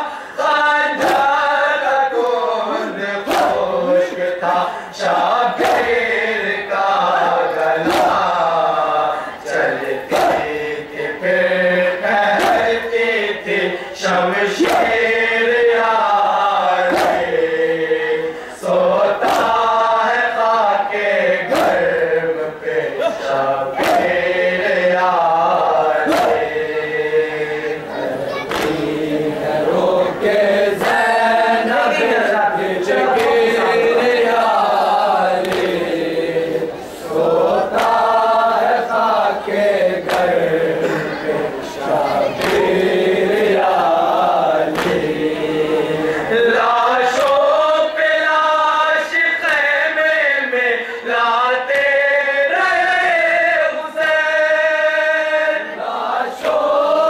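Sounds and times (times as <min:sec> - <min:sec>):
lead reciter at microphone: 0:00.0 - 0:57.0
men chanting in chorus: 0:00.0 - 0:57.0
chest-beating slaps: 0:01.0 - 0:01.3, 0:03.2 - 0:03.7, 0:05.6 - 0:06.0, 0:07.8 - 0:08.4, 0:10.1 - 0:10.7, 0:12.3 - 0:12.8, 0:14.6 - 0:15.0, 0:16.8 - 0:17.3, 0:19.2 - 0:19.6, 0:21.5 - 0:21.9, 0:23.1 - 0:24.4, 0:26.0 - 0:26.6, 0:28.4 - 0:29.0, 0:35.4 - 0:35.9, 0:37.7 - 0:38.1, 0:40.0 - 0:40.4, 0:42.3 - 0:43.7, 0:44.6 - 0:45.3.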